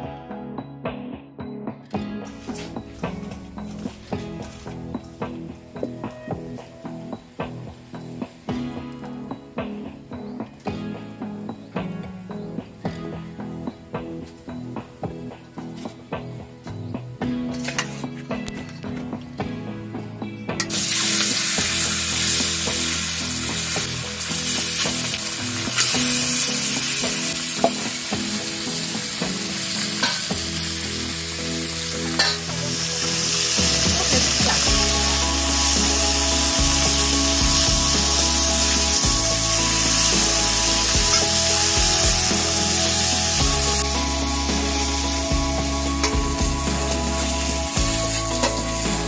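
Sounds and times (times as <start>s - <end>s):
fish sizzling in hot oil: 20.7s - 49.0s.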